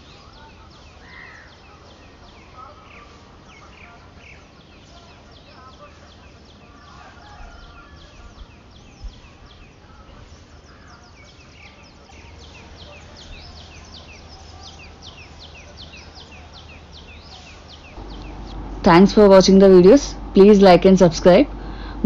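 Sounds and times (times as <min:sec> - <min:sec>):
low hum: 0:16.2 - 0:22.0.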